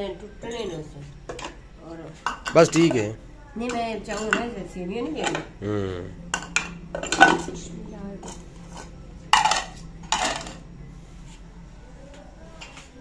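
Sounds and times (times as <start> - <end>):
steel spoons and bowls clattering: 8.2 - 10.6.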